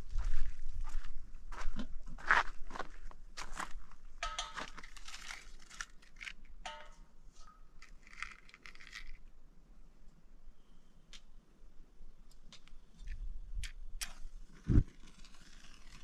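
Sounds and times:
metallic clicks and clinks: 4.2 - 9.2.

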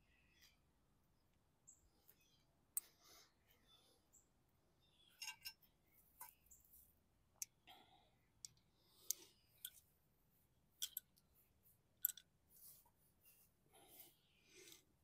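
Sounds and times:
small parts clicking: 10.8 - 11.3, 12.0 - 12.3.

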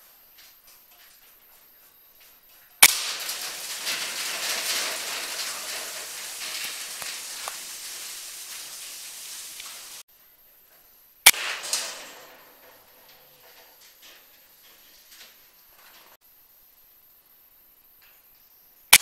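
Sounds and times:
crackling rustling noise: 0.0 - 10.1, 10.7 - 16.2
air rifle shot: 11.3 - 11.6.

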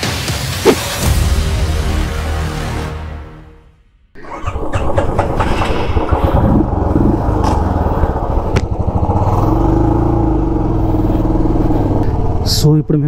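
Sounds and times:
motorcycle engine idling: 6.0 - 13.0.

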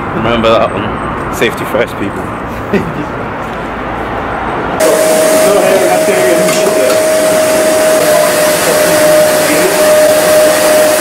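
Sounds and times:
blower rushing with whine: 4.8 - 11.0.

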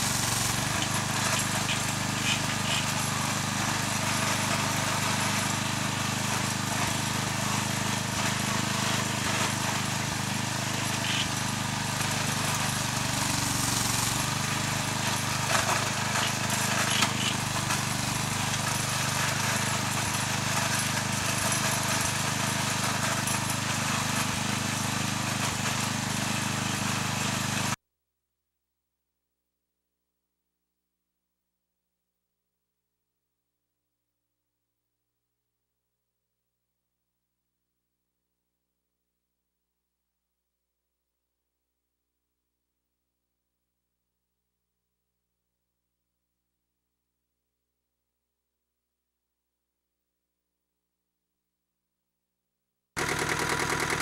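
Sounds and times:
small engine running: 0.0 - 27.8, 53.0 - 54.0.

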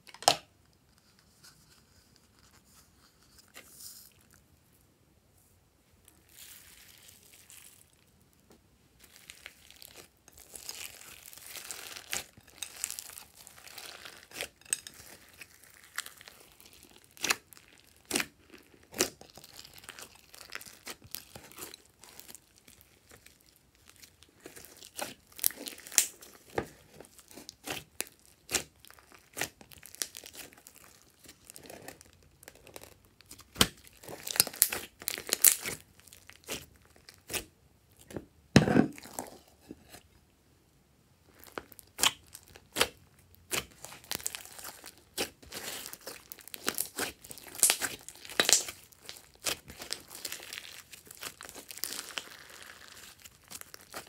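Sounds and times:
hands squishing slime: 9.0 - 37.5, 41.3 - 54.0.

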